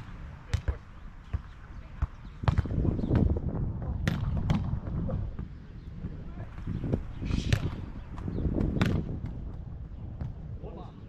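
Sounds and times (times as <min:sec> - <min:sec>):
volleyball slaps: 0:02.0 - 0:03.3, 0:04.0 - 0:05.0, 0:07.5 - 0:09.4.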